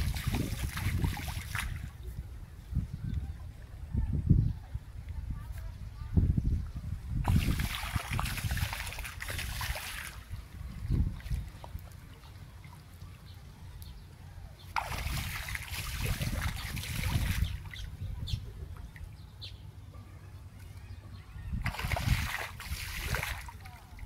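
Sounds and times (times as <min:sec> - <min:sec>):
water splashing and sloshing: 0:00.0 - 0:02.2, 0:07.2 - 0:13.6, 0:14.6 - 0:19.3, 0:21.5 - 0:24.0
water trickling and dripping: 0:14.8 - 0:17.9.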